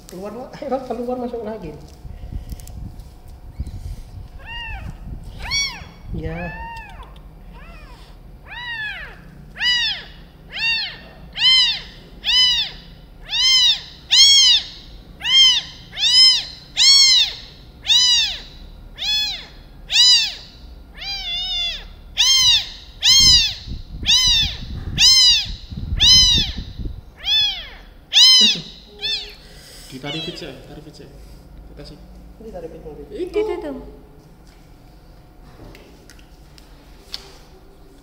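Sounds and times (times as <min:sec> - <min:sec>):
kitten mewing: 0:04.3 - 0:30.8.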